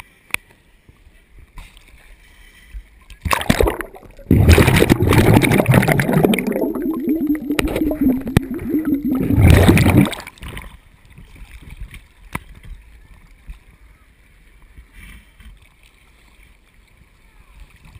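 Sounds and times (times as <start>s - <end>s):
faint water splashing: 0.5s - 17.9s
muffled underwater rushing water: 1.0s - 14.9s.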